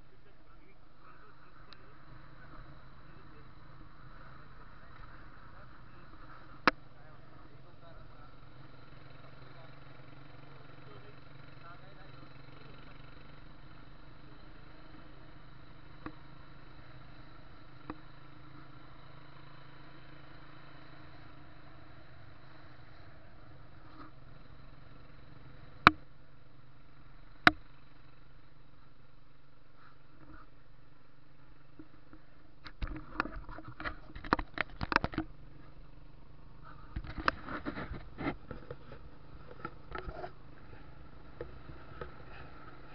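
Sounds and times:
motorcycle engine humming: 0.0s - 42.9s
knocks and handling noise: 31.8s - 35.3s.

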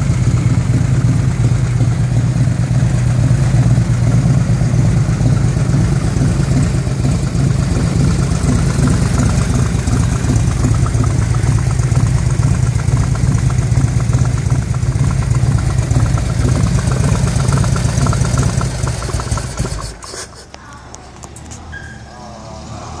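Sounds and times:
motorcycle engine idling: 0.0s - 21.6s
engine clicks: 5.2s - 21.7s.

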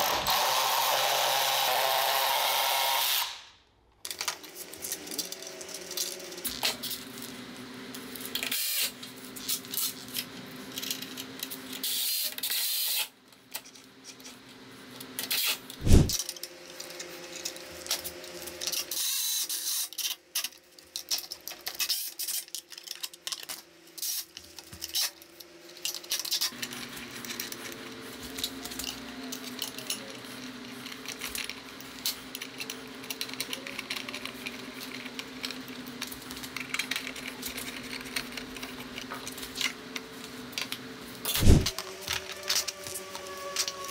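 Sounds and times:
cordless driver whirring: 0.0s - 3.5s, 41.3s - 43.9s.

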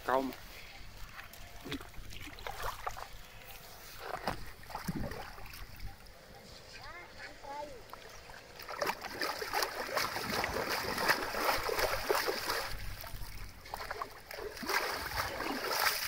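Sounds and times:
hands splashing in muddy water: 8.6s - 16.0s.

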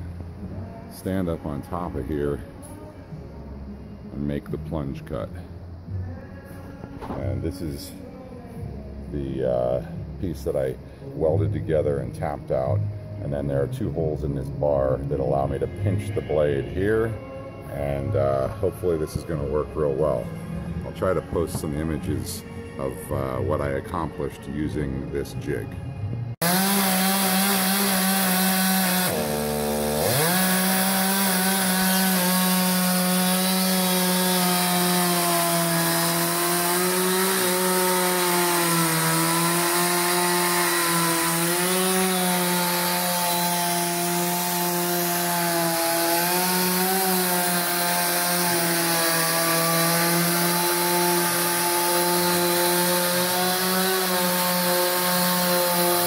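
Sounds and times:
chainsaw cutting log at high revs: 26.4s - 56.0s.

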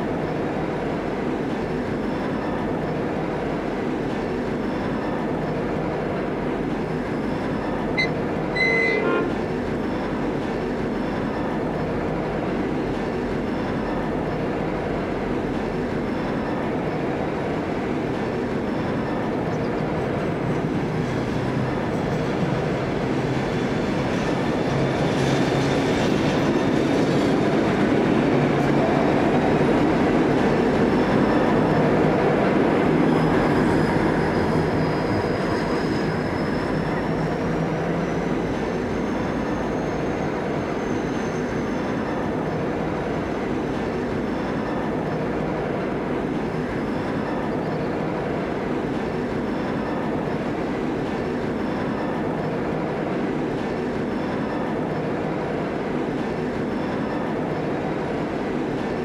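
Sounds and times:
diesel locomotive engine: 0.0s - 59.0s
rail running noise: 0.0s - 59.0s
faint high squeal: 8.0s - 9.3s, 33.1s - 42.1s.

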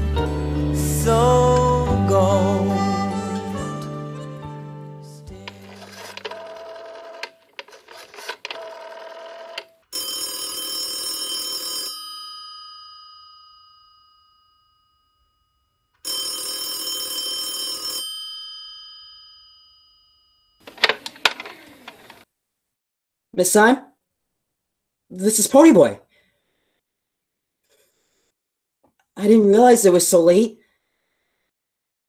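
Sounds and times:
telephone bell ringing: 5.6s - 21.5s.

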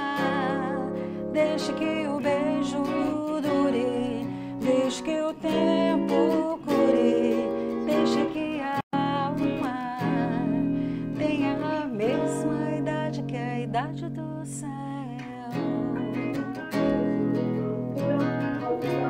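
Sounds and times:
woman singing: 0.0s - 17.4s
acoustic guitar: 0.0s - 19.0s
electric guitar: 0.0s - 19.0s.

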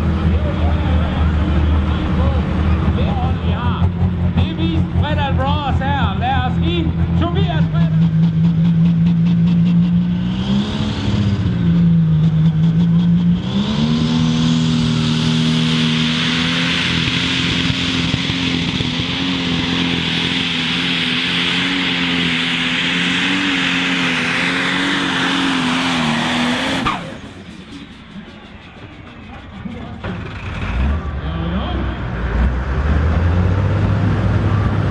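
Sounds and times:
tractor diesel engine revving: 0.0s - 34.9s.

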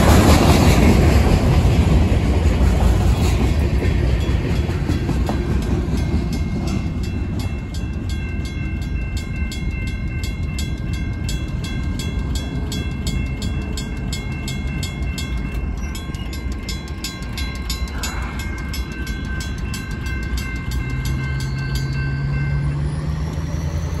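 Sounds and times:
mechanical crossing bell strikes: 3.9s - 23.5s
electronic bell ringing tones: 14.7s - 22.7s
truck engine rising in pitch: 18.0s - 24.0s.

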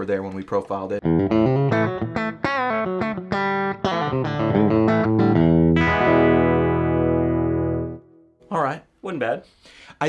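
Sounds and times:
electric guitar lick: 1.0s - 8.1s.

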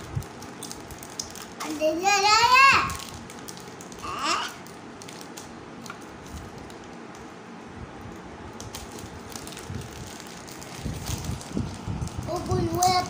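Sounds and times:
child's vocal sound: 4.0s - 4.6s.

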